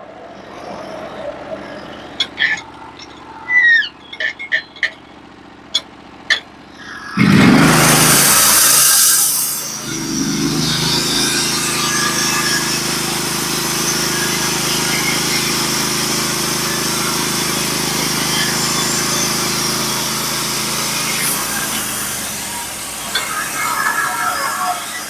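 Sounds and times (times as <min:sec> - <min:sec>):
sawmill engine running: 0:00.1 - 0:25.0
band saw cutting hiss: 0:06.8 - 0:25.0.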